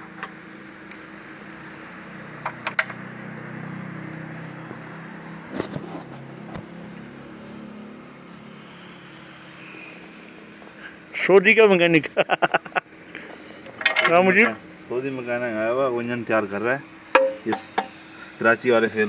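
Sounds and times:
sharp metal clicks: 0.0 - 3.1
low mechanical hum: 0.0 - 19.0
knocks: 17.2 - 18.0.

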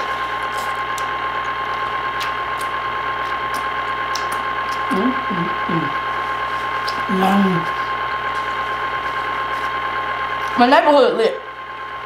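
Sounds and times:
pump motor whirring and whining: 0.0 - 12.0.

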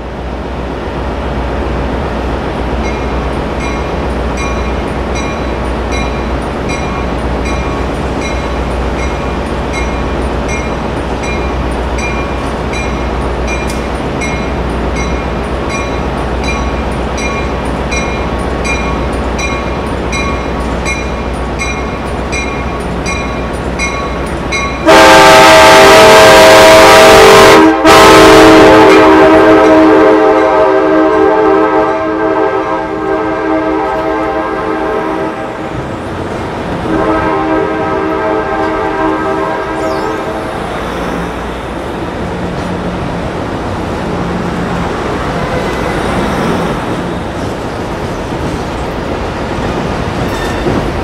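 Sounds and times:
railroad crossing bell ringing: 2.8 - 25.3, 50.2 - 51.0
train horn: 24.7 - 35.7, 36.8 - 40.7.

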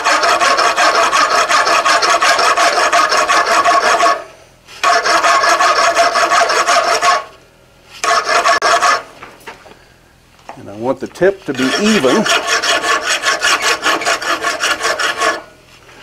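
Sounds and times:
file rasping across hot steel: 0.0 - 7.4, 8.0 - 9.1, 11.2 - 15.6.

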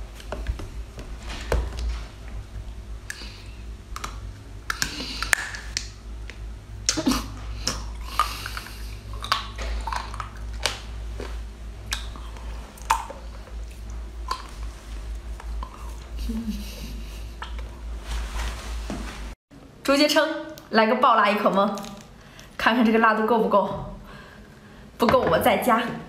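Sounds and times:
low steady hum: 0.0 - 26.0
person chewing with wet smacks: 3.0 - 16.2
mouth clicks: 4.0 - 5.9.

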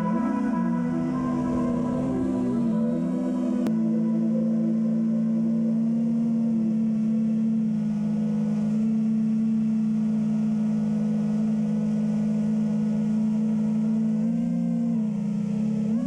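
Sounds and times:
drone propellers humming: 0.0 - 16.0.

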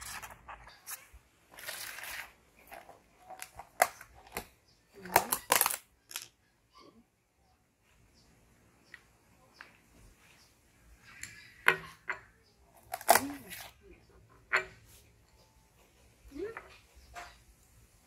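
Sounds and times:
plastic container rustling: 0.0 - 4.5.

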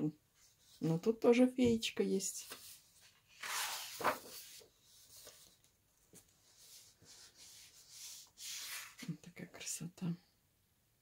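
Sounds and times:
soft paper rustle: 2.2 - 9.2
paper page turning: 2.4 - 9.1
hand rubbing on paper: 6.5 - 9.0.

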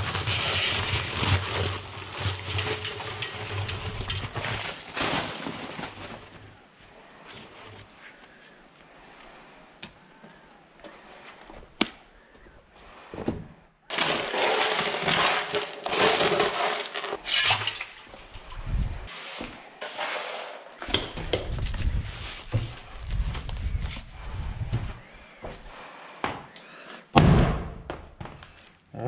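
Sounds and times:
shovel scraping wet concrete: 0.0 - 6.0, 13.9 - 18.0, 19.1 - 20.7
handling clatter and knocks: 0.0 - 6.5, 13.2 - 18.5.

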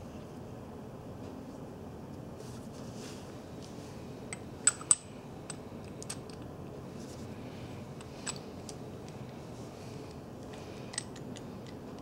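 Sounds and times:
metal parts clinking: 4.6 - 6.5.

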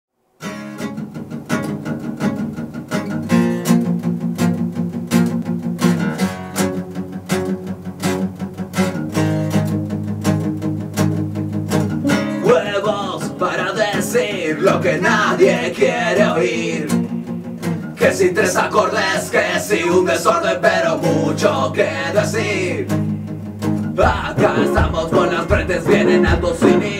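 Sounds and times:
electric guitar rhythm: 0.4 - 26.9
strummed acoustic guitar: 0.4 - 26.9
man singing: 12.1 - 17.2, 18.0 - 23.0, 24.0 - 26.9
drum beat: 24.0 - 26.9.

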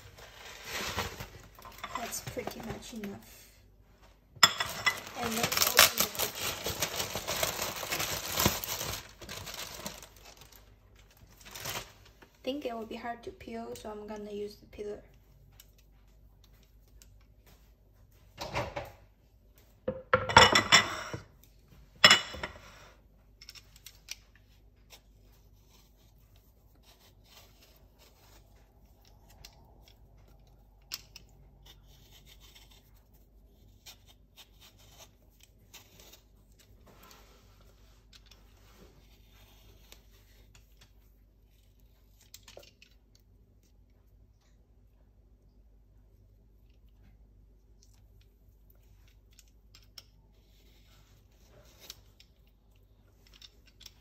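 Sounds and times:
clatters and knocks on counter: 19.9 - 21.2
peeler scraping peach skin: 24.8 - 29.5, 30.9 - 36.7.

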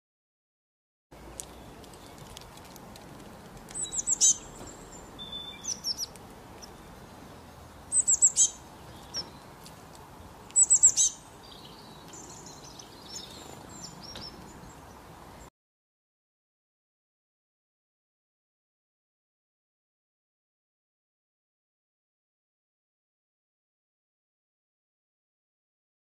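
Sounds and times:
songbirds chirping: 1.1 - 15.5.

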